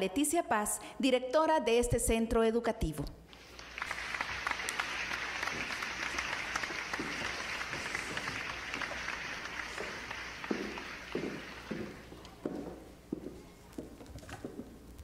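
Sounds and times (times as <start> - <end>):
audience applauding: 3.4 - 12.8.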